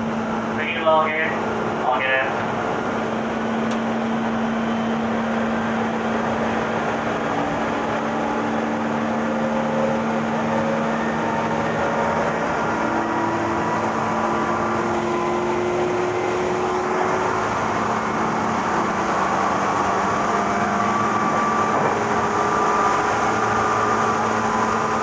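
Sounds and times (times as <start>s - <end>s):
constant low hum: 0.0s - 12.5s
train wheel and rail rumble: 0.0s - 25.0s
motor whine rising in pitch: 2.7s - 25.0s.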